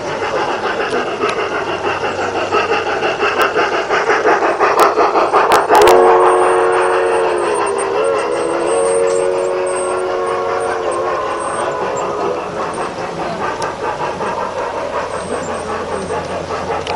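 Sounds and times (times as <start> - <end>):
model steam locomotive chuffing: 0.0 - 16.9
steam whistle blowing: 5.7 - 12.4.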